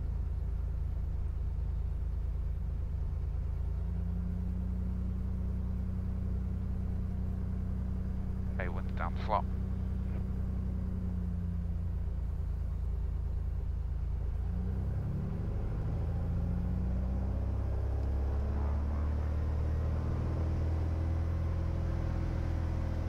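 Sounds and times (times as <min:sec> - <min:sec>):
aircraft engine and propeller: 0:17.1 - 0:21.4.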